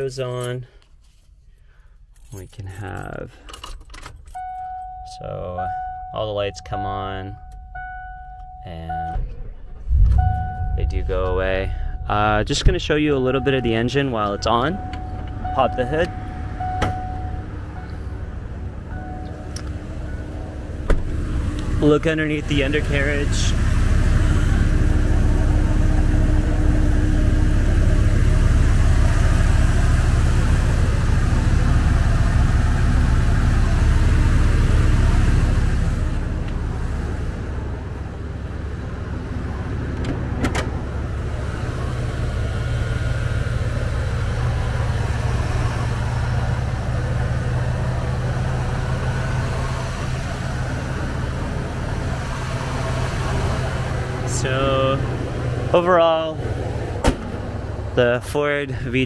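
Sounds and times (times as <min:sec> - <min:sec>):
van engine idling: 0:05.6 - 0:59.0.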